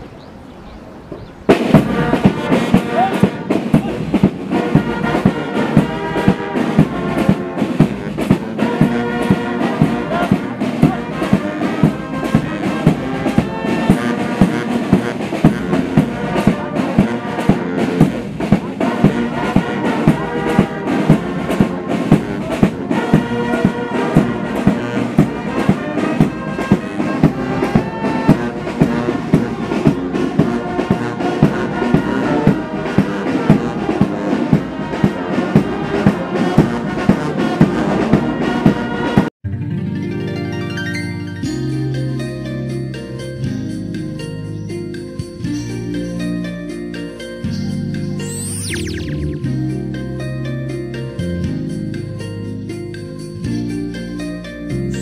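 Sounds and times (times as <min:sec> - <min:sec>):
steady drum beat: 0:01.4 - 0:39.3
brass band playing a march: 0:01.5 - 0:39.3.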